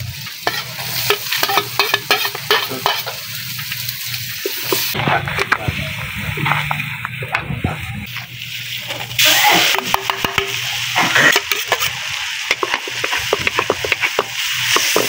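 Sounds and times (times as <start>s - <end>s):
food sizzling in a wok: 0.0s - 15.0s
metal ladle scraping a wok: 0.2s - 5.6s, 8.9s - 15.0s.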